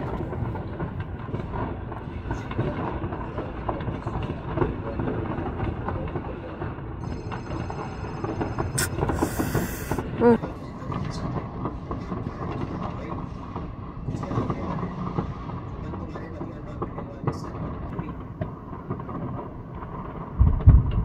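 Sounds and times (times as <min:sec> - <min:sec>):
loud firework crack: 0:00.0 - 0:07.2, 0:08.5 - 0:10.2, 0:10.9 - 0:21.0
fireworks popping and crackling: 0:00.0 - 0:21.0
brief hiss: 0:08.8 - 0:10.0.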